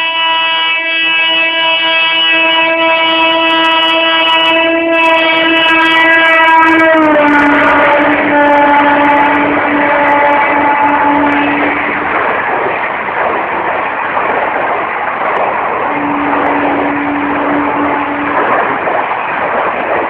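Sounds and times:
locomotive horn: 0.0 - 12.0, 15.9 - 18.8
train rushing past: 0.0 - 20.0
steady tone: 14.6 - 20.0.

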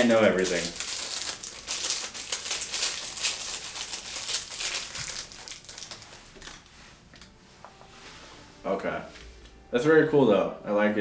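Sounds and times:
plastic wrapper crinkling: 0.0 - 6.7.

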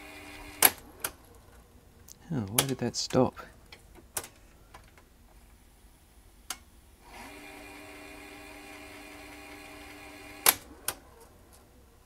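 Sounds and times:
tape mechanism motor humming: 0.0 - 1.1, 7.0 - 11.1.

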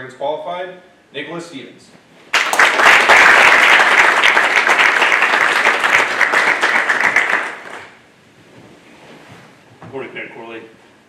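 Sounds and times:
audience applauding: 2.3 - 8.0.

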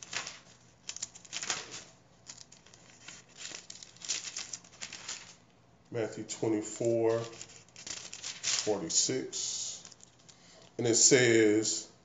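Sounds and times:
pages turning: 0.0 - 5.4, 6.6 - 10.4.

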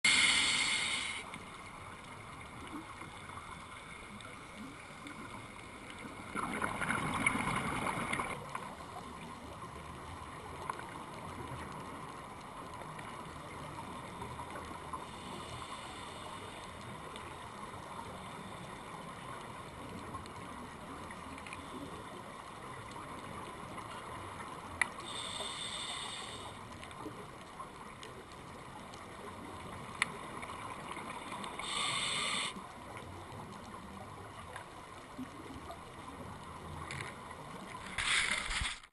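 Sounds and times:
regulator hiss: 0.0 - 1.6, 15.0 - 16.8, 25.0 - 26.7, 31.5 - 32.6
steady underwater hiss: 0.0 - 38.9
faint clicks: 0.1 - 38.9
scuba exhaust bubbles: 2.1 - 8.6.

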